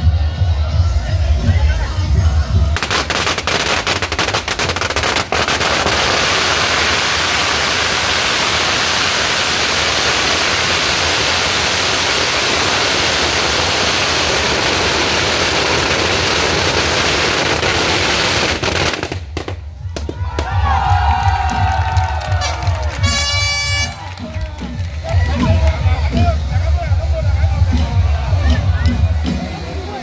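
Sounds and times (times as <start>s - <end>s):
firecrackers bangs and crackle: 2.7s - 26.3s.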